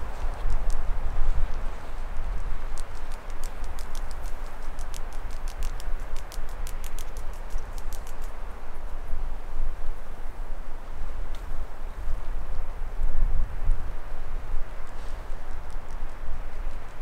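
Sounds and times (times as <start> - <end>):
light sharp clicks: 2.7 - 8.4.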